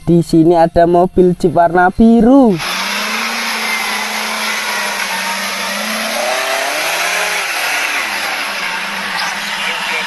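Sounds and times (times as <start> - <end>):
off-road vehicle engine under load: 2.3 - 10.0.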